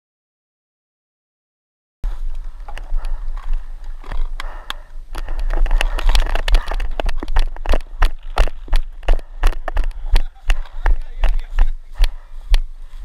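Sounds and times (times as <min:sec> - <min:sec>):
dry grass rustling and crackling: 0:02.1 - 0:13.0
footsteps: 0:02.1 - 0:13.0.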